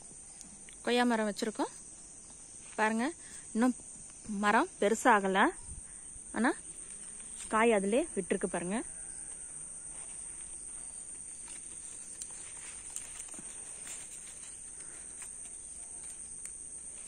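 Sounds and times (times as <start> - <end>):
crickets chirping: 0.0 - 17.0
leaves rustling: 5.8 - 17.0.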